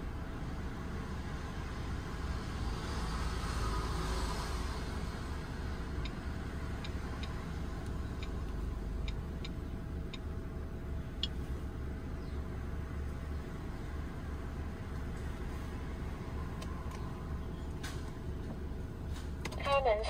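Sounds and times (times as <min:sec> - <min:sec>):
car engine idling: 0:04.8 - 0:20.0.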